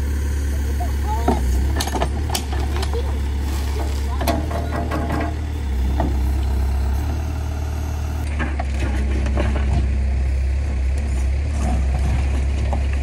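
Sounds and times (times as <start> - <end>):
diesel engine running: 0.0 - 13.0
short clunks: 1.2 - 10.0.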